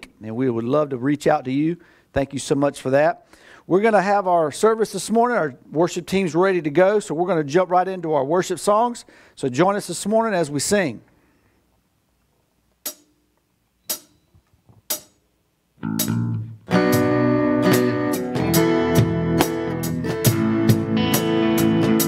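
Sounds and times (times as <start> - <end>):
count-in clicks: 12.8 - 13.2, 13.8 - 15.2
band playing: 15.8 - 22.0.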